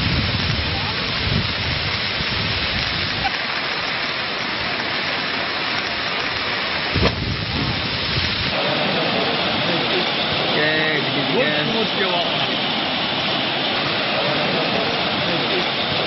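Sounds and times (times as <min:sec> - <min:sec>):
floodwater rushing: 0:00.0 - 0:16.0
short thump: 0:07.0 - 0:07.3.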